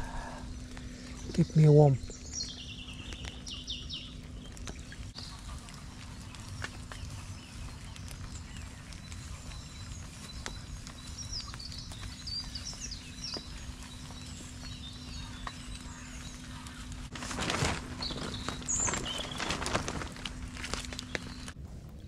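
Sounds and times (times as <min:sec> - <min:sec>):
bird chirps: 0:00.0 - 0:17.1, 0:18.0 - 0:19.6
low outdoor noise: 0:00.0 - 0:22.0
tent fabric rustling and scraping: 0:17.0 - 0:21.6.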